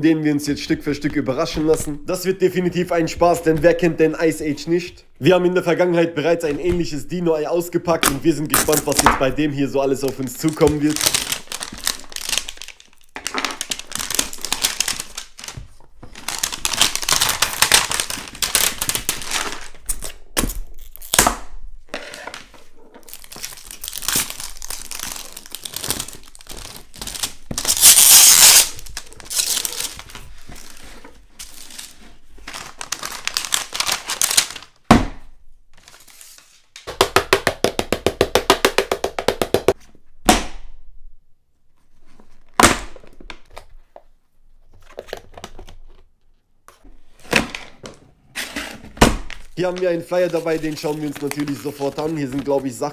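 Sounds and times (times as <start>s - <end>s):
plastic wrapper tearing and crinkling: 8.0s - 9.2s, 9.8s - 21.3s, 23.0s - 34.8s, 49.2s - 52.9s.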